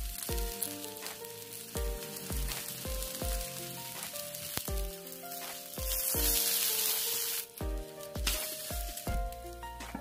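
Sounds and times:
sandwich sizzling on griddle: 0.0 - 9.9
background music with beat: 0.0 - 10.0.

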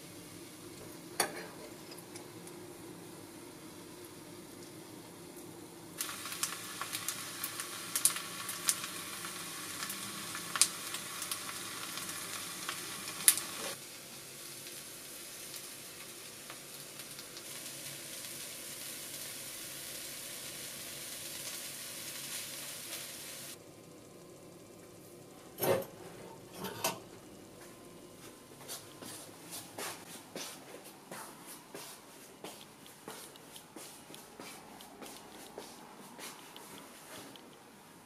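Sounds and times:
food sizzling in skillet: 3.4 - 25.2
crackles and pops: 5.4 - 13.8, 15.4 - 18.4.

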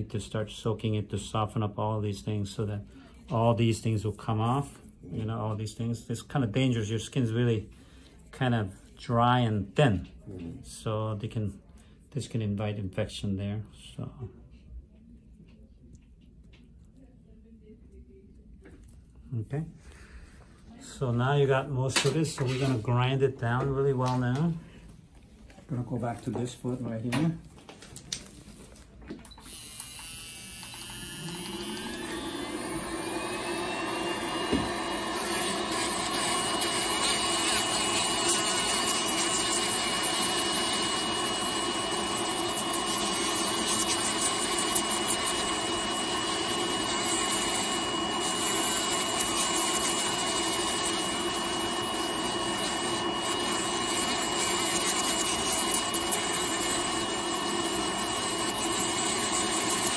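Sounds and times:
electric nail drill whining: 29.4 - 59.9.

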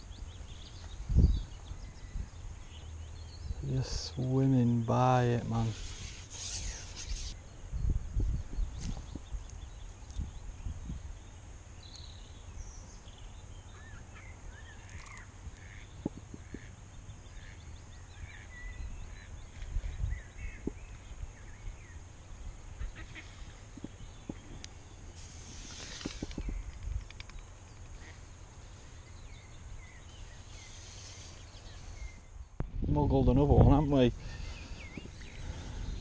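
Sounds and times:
birds chirping: 0.0 - 36.0
low rumbles on microphone: 32.0 - 36.0.

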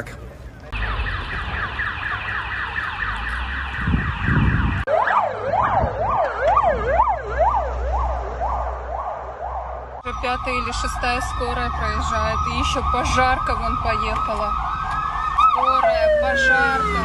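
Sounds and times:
low rumble of vehicles: 0.0 - 17.0
emergency vehicle sirens: 0.5 - 17.0.

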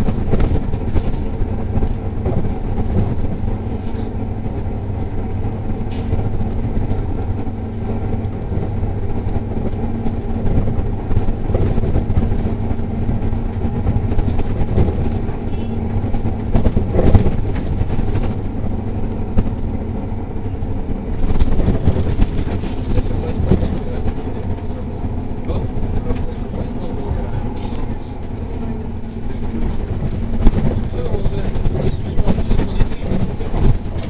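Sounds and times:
bus engine and tyres drone: 0.0 - 34.0
knocks and rattles: 8.4 - 19.8, 20.8 - 34.0.

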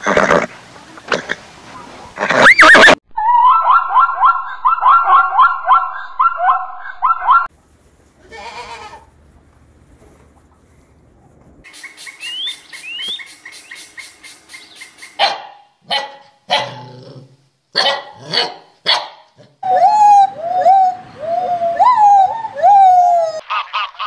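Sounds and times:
gibbons whooping: 2.2 - 7.5, 19.6 - 23.6
puppies barking and yipping: 2.4 - 7.5
woodpecker ticking calls: 11.7 - 15.2.

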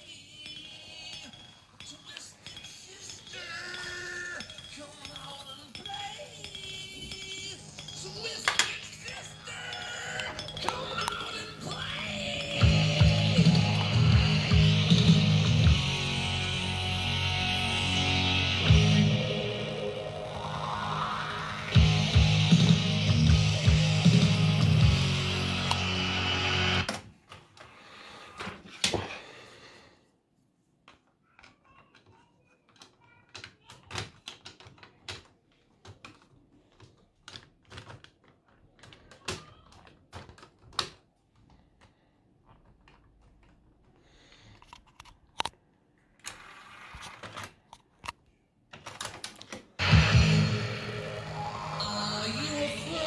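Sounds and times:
cassette mechanism clicks and clatter: 32.7 - 41.0.

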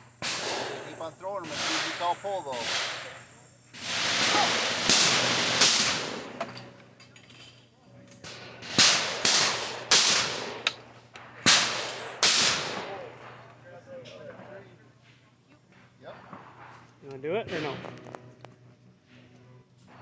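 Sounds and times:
shotgun shots: 0.2 - 6.7, 8.2 - 13.5, 16.2 - 16.9.

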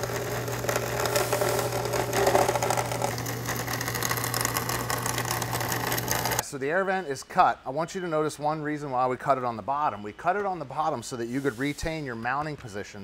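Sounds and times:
bandsaw cutting plastic: 0.0 - 6.4.

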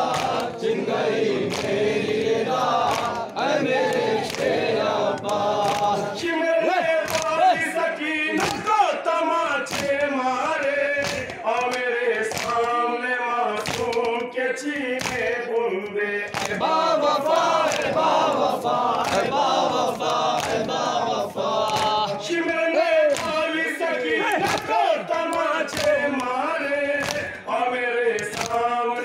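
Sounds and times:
chest-beating slaps: 0.0 - 0.6, 1.4 - 3.3, 3.9 - 6.1, 11.0 - 12.8, 13.6 - 14.2, 14.8 - 15.3, 18.9 - 22.2, 25.7 - 26.3, 27.0 - 27.4
men chanting in unison: 0.0 - 29.0.

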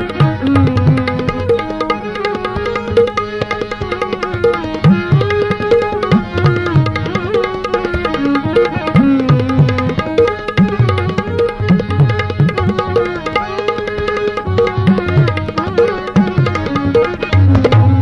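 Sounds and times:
tabla strokes: 0.0 - 18.0.

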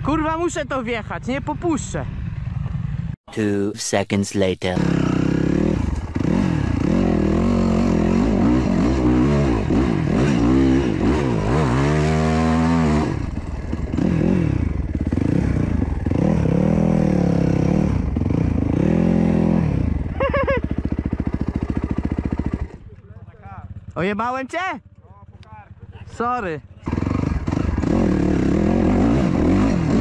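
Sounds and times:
dirt bike engine revving: 4.6 - 22.9, 26.6 - 30.0.

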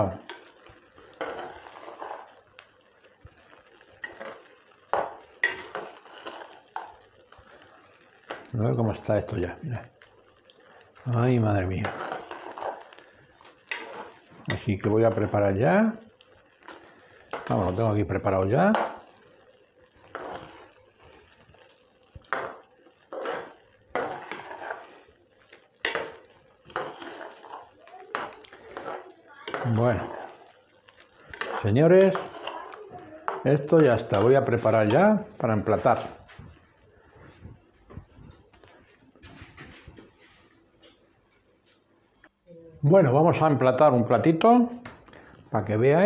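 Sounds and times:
spoon scraping and knocking pot: 11.8 - 13.0, 18.6 - 19.1, 22.3 - 24.9, 25.8 - 30.5, 31.3 - 32.6.

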